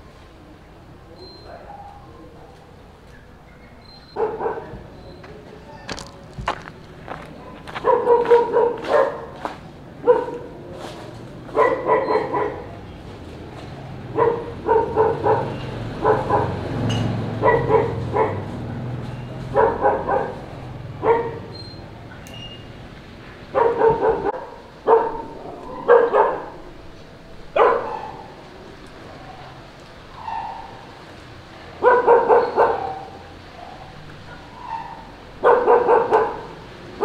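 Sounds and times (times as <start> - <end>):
dog barking: 4.1 - 4.8, 7.7 - 9.4, 10.0 - 10.6, 11.5 - 12.8, 14.1 - 16.7, 17.3 - 18.9, 19.5 - 21.6, 23.5 - 26.6, 27.6 - 28.4, 31.7 - 36.6.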